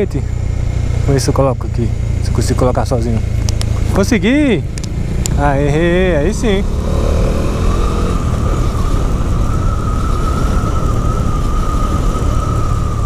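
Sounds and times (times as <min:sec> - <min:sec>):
motorcycle engine rumble: 0:00.0 - 0:13.0
steady high whine: 0:00.0 - 0:13.0
wind rush: 0:03.1 - 0:13.0.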